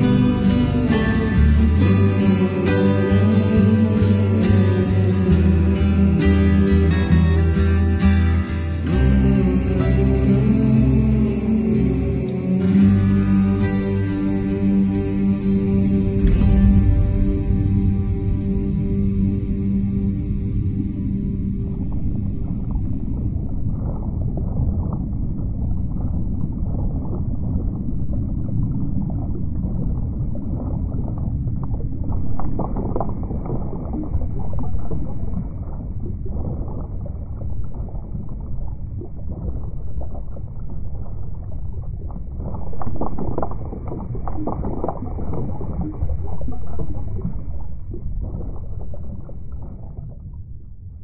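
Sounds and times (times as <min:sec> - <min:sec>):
water lapping and sloshing: 0:00.0 - 0:51.0.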